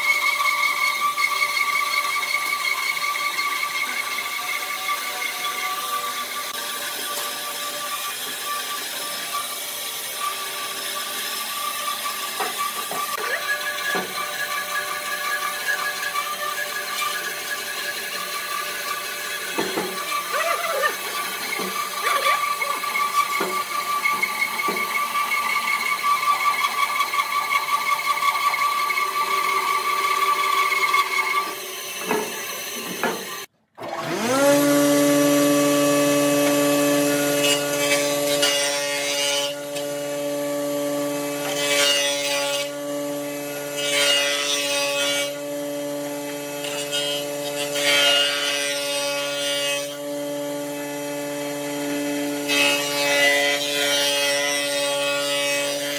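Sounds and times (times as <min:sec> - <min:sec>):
bandsaw whining through wood: 0:00.0 - 0:55.9
jointer cutting wood: 0:00.0 - 0:55.9
jointer motor hum: 0:00.1 - 0:41.8.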